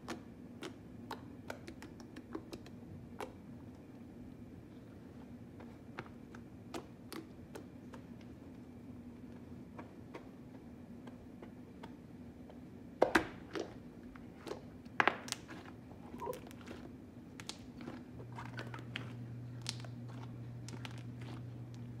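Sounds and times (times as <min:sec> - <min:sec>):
faint steady hum: 0:00.0 - 0:22.0
second low hum: 0:15.6 - 0:22.0.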